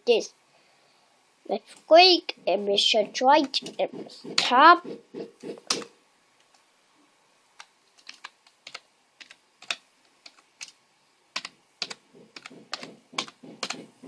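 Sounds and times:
typing on computer keyboard: 8.0 - 10.8, 11.4 - 14.0.

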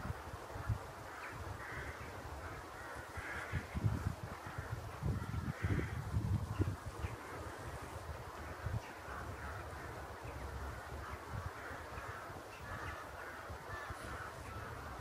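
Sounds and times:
crows cawing: 1.1 - 3.8, 4.4 - 6.1, 8.5 - 15.0.

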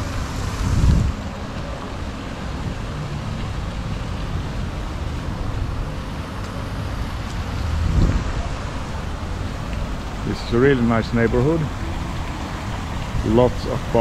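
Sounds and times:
wind on microphone: 0.0 - 10.6
distant traffic: 0.0 - 14.0.

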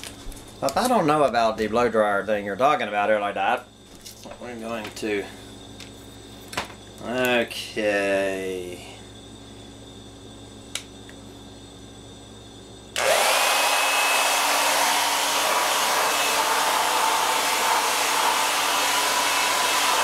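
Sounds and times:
blow dryer running: 13.0 - 20.0.

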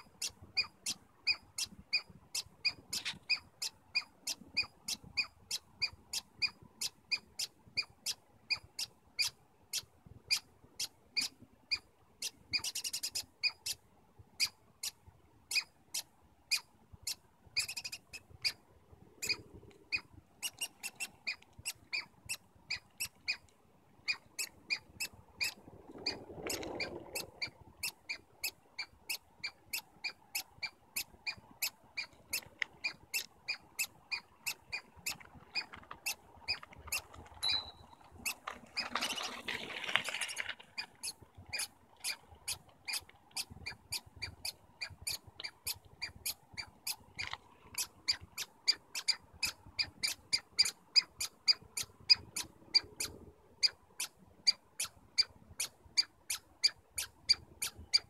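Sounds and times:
squirrel squeaking: 0.0 - 58.0
rustling: 34.5 - 45.8.

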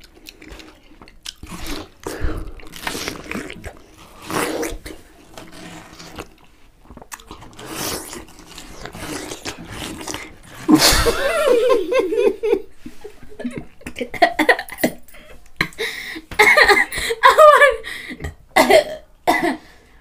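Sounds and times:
biting and slurping watermelon: 0.0 - 11.5
wavering laughter: 10.7 - 14.7.

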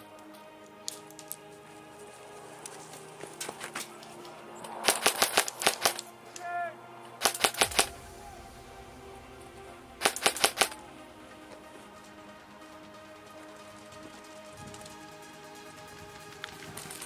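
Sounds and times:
airsoft gun rapid shots: 4.8 - 6.0, 7.2 - 7.9, 10.0 - 10.8.

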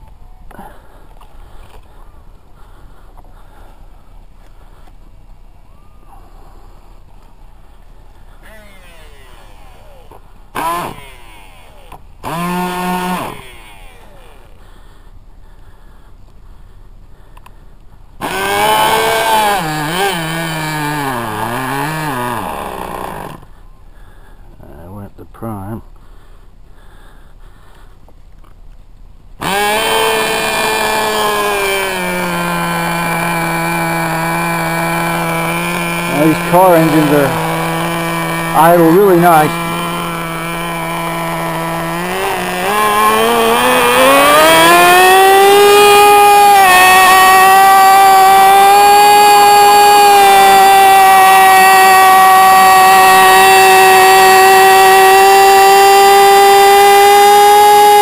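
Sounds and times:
small two-stroke engine running: 8.2 - 14.6, 18.2 - 23.5, 29.4 - 58.0.

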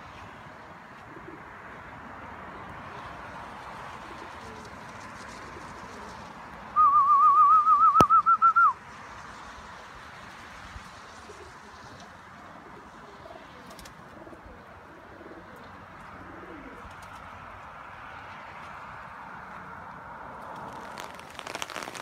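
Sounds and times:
loud warbling whistle: 6.8 - 8.8.

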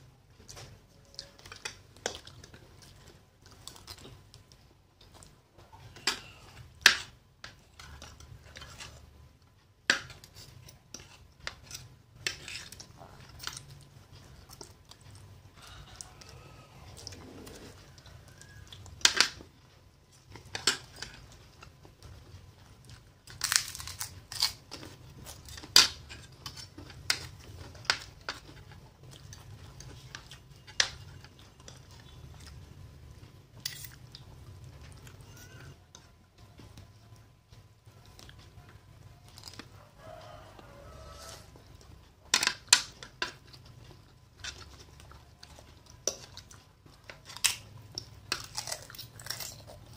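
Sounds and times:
chewing noodles: 43.0 - 49.9.

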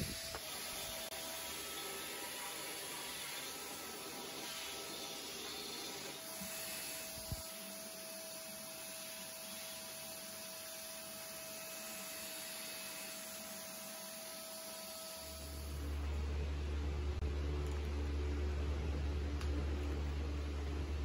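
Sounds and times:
stick vacuum running: 0.0 - 16.4.

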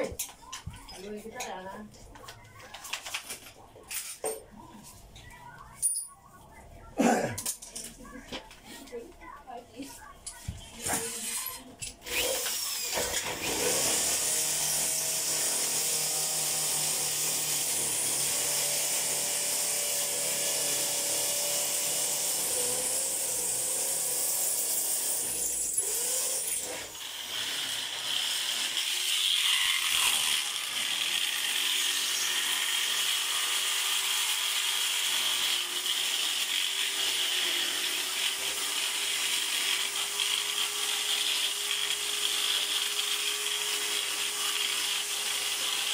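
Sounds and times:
power tool motor running: 12.0 - 45.9.

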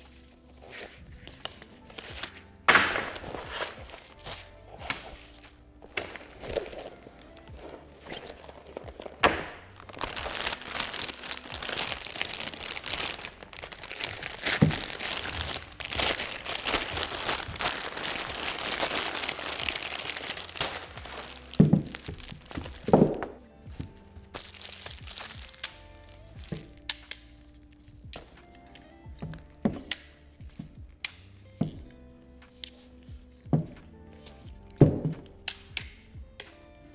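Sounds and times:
packaging crinkling: 0.0 - 23.3, 24.3 - 26.9
background music: 0.0 - 36.9.

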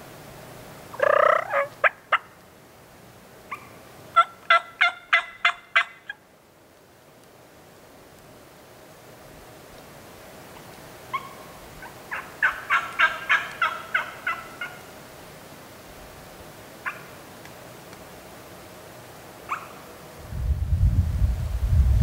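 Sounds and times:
turkey yelping: 1.0 - 2.4, 3.5 - 6.2, 11.1 - 14.9, 16.8 - 17.2, 19.5 - 19.8
loud low rumble: 20.2 - 22.0.

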